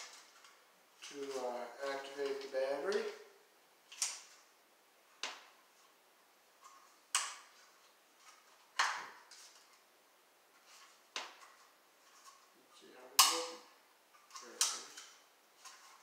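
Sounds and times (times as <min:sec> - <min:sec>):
plastic clicks and snaps: 0:13.2 - 0:15.8.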